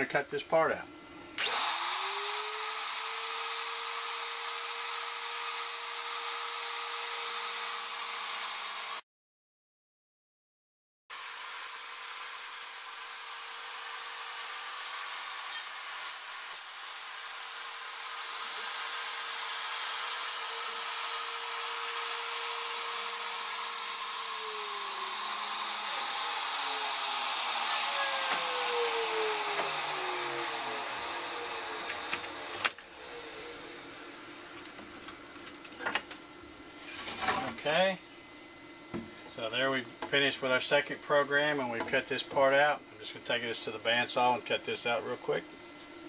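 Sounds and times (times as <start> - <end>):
wood router whining: 1.3 - 9.0, 11.1 - 36.2
router cutting through wood: 1.4 - 9.0, 11.1 - 34.8.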